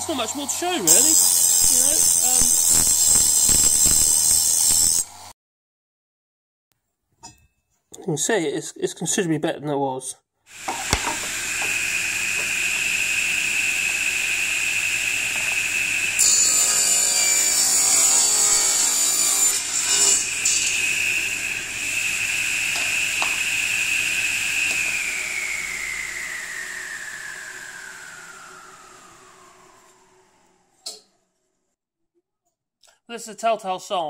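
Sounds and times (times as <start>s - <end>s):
saw blade spinning down: 0.0s - 5.3s, 10.5s - 30.8s
table saw whining: 0.0s - 5.3s, 10.5s - 31.1s
saw ripping wooden board: 0.8s - 5.1s, 10.6s - 13.0s.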